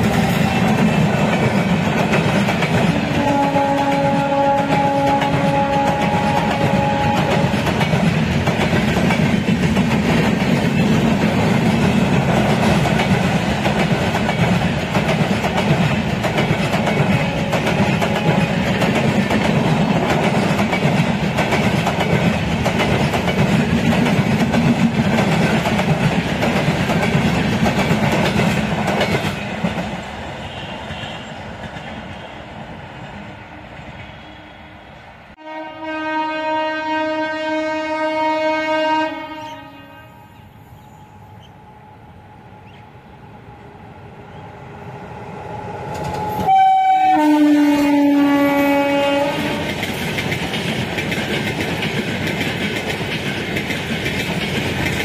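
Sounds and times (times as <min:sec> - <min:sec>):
train wheels on rails: 0:00.0 - 0:35.4, 0:40.2 - 0:55.0
train horn: 0:02.8 - 0:07.8, 0:17.0 - 0:19.0, 0:30.4 - 0:31.4, 0:34.1 - 0:40.5, 0:46.1 - 0:49.8.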